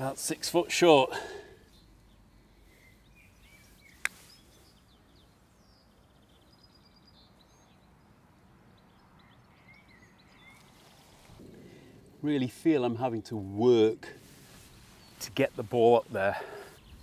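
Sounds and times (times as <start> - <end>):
faint bird chirps: 1.6 - 12.3.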